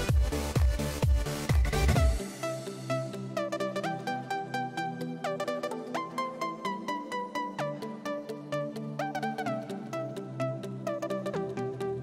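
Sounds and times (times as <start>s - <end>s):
electronic music drum beat: 0.0s - 2.9s.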